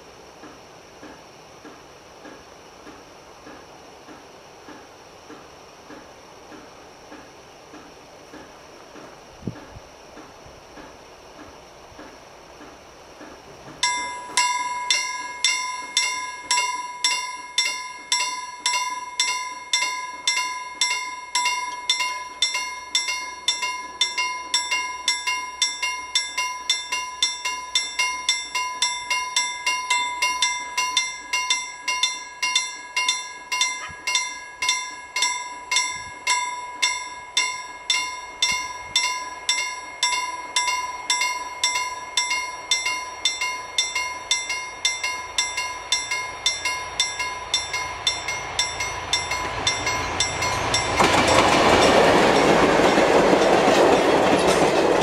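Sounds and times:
level-crossing warning bell: 13.8s - 55.0s.

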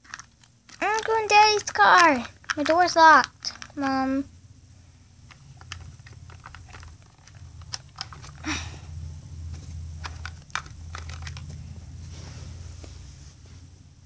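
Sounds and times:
plastic toys clicking and tapping: 0.0s - 4.3s, 5.2s - 8.7s, 10.0s - 11.6s.

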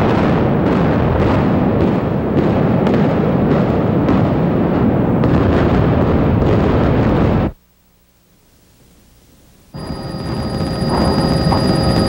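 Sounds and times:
demolition explosions rumble: 0.0s - 7.6s, 9.8s - 12.0s
sharp explosive cracks: 0.0s - 7.6s.

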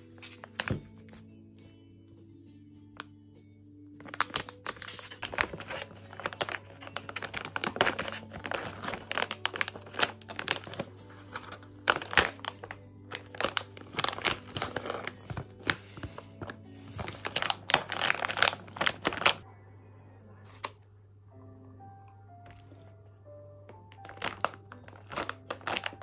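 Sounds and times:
soft background music: 0.0s - 26.0s
snack pouch crinkling: 4.0s - 19.4s, 23.7s - 26.0s.

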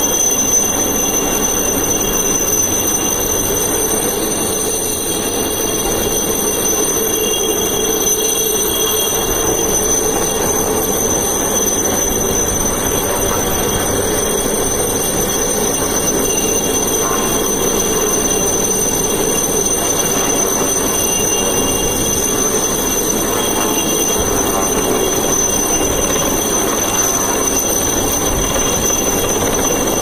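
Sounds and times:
helicopter hovering: 0.0s - 30.0s.

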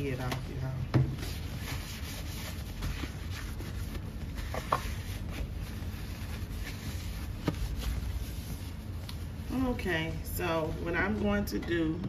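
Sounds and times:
rubbing and scuffing of lid: 1.1s - 9.3s.

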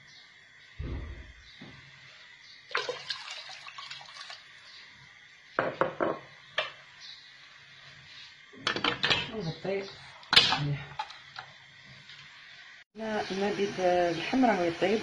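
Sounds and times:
hot water poured splashing: 2.7s - 4.6s.

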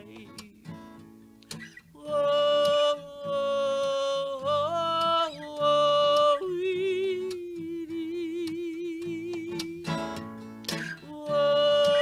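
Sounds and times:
acoustic guitar: 0.0s - 12.0s
woman singing long notes: 2.0s - 10.0s, 11.0s - 12.0s.

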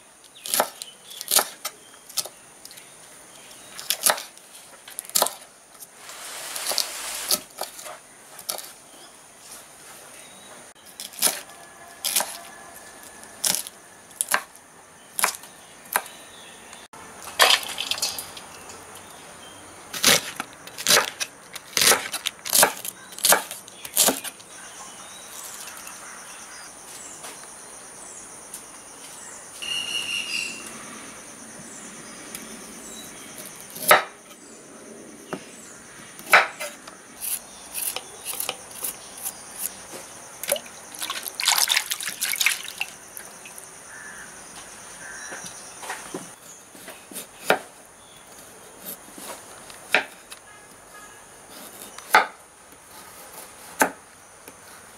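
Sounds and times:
knife chopping on wooden board: 33.8s - 34.2s, 46.2s - 47.7s
knife peeling carrot: 37.2s - 39.8s.

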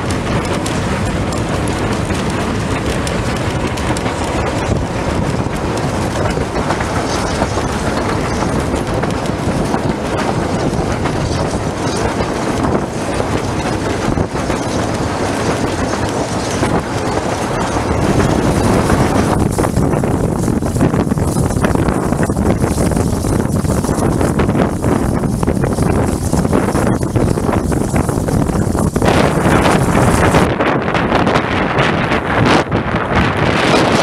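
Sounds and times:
train wheels on rails: 0.0s - 34.0s.

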